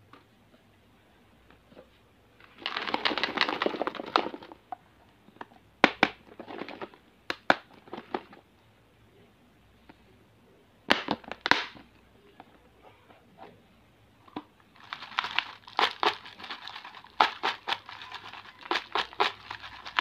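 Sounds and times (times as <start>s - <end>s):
hard plastic crackling rustle: 1.7s - 4.8s, 14.3s - 20.0s.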